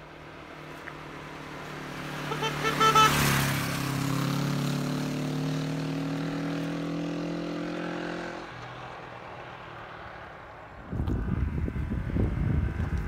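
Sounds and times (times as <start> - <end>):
motorcycle engine pulling away: 3.0 - 8.5.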